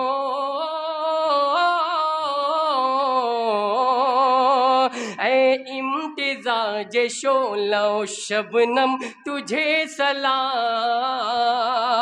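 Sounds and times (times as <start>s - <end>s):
man singing unaccompanied: 0.0s - 12.0s
sharp breath in: 4.9s - 5.2s, 9.0s - 9.3s.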